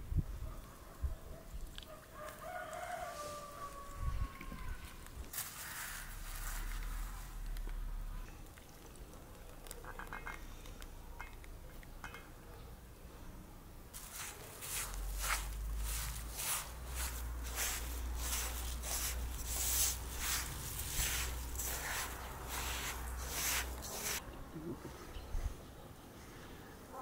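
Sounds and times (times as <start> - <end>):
hands rubbing butter into flour: 14.0 - 24.2.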